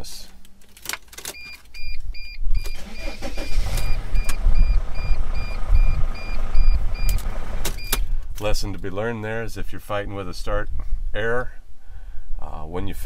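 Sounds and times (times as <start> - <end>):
dashboard warning chime beeping: 1.4 - 7.2
diesel engine cranking and starting: 2.6 - 8.2.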